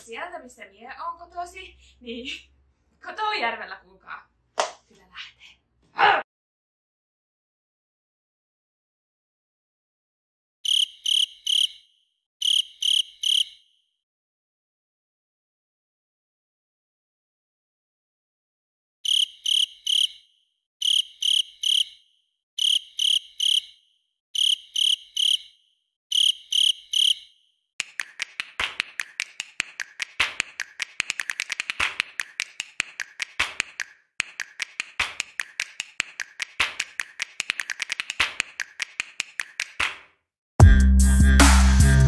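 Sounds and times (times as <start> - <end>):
crickets chirping: 10.6 - 11.8, 12.4 - 13.6, 19.0 - 22.0, 22.6 - 23.8, 24.4 - 27.4.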